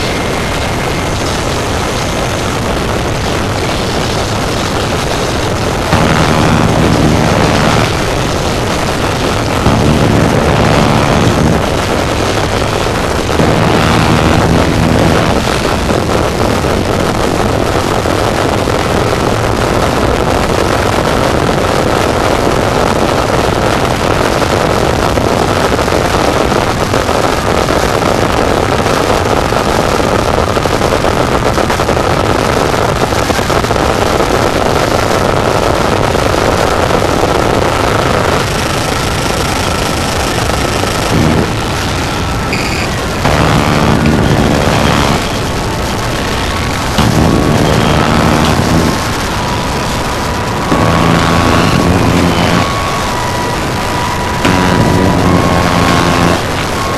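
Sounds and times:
low pitched drone: 0.0 - 20.3, 36.2 - 56.9
harsh noise music static: 0.0 - 56.9.

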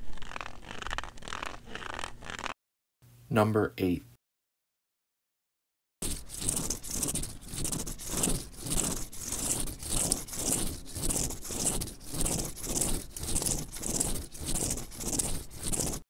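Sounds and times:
cane tip scraping a mat: 0.0 - 2.6, 6.0 - 16.0.

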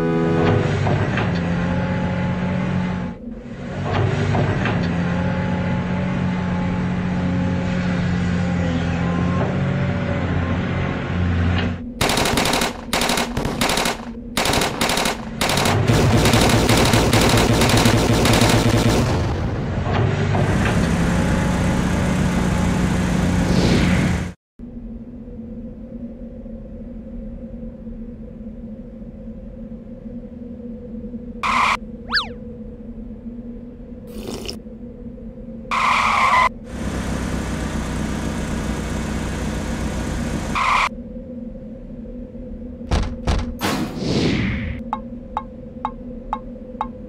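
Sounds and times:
rapid stuttering bursts: 12.0 - 19.3
cartoon sound effects: 32.1 - 32.4.

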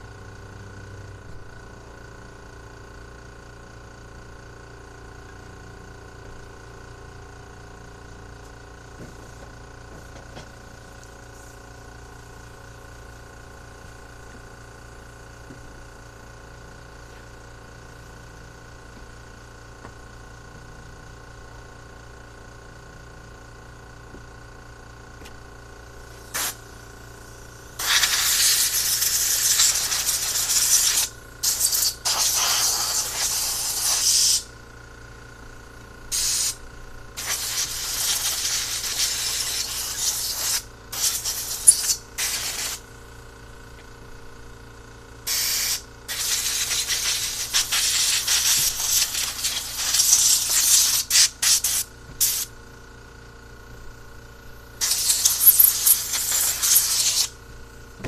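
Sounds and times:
compressed air blow gun hissing: 26.2 - 26.6, 27.8 - 34.5, 36.1 - 36.6, 37.2 - 42.8, 45.3 - 52.5, 54.8 - 57.4.

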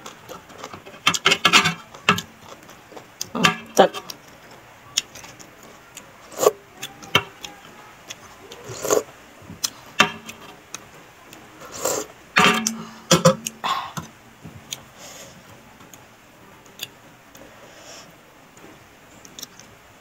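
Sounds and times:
person slurping broth: 6.3 - 6.6, 8.6 - 9.1, 11.6 - 12.1.

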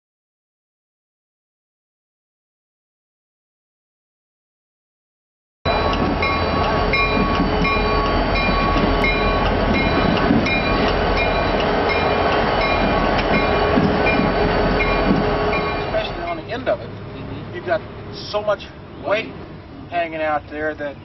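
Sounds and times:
heavy diesel machinery rumbling: 5.7 - 21.0.

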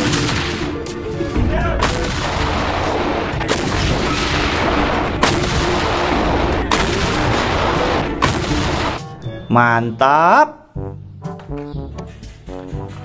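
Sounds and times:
heavy gun blasts: 1.7 - 9.0.

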